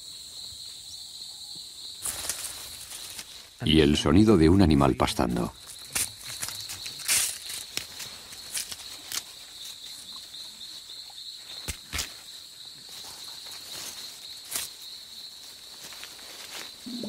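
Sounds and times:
insects droning: 0:00.0 - 0:17.0
plant stems snapping: 0:05.8 - 0:09.3, 0:11.6 - 0:12.2.

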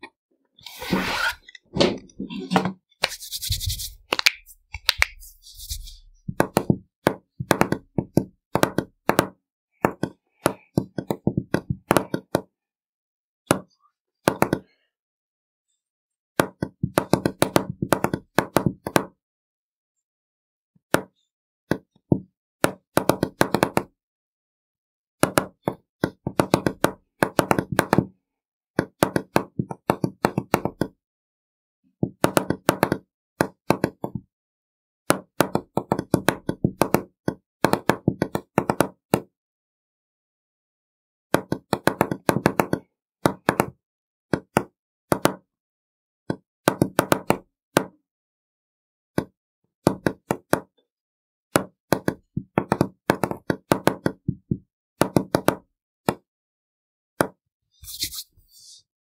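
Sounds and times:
fingers tapping on wooden desk: 0:06.3 - 0:12.5, 0:16.4 - 0:19.1, 0:25.2 - 0:28.1, 0:28.8 - 0:31.0, 0:32.0 - 0:34.2, 0:35.1 - 0:39.3, 0:41.3 - 0:45.4, 0:51.6 - 0:56.2.

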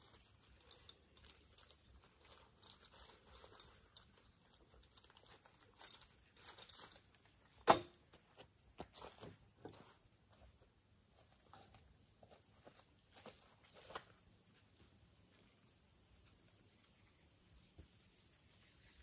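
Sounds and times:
gear rustling and clicking: 0:00.0 - 0:07.5.

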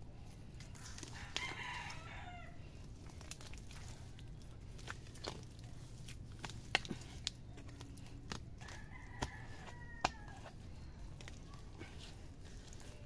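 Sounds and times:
rooster crowing faintly: 0:00.8 - 0:02.6, 0:08.6 - 0:12.8.

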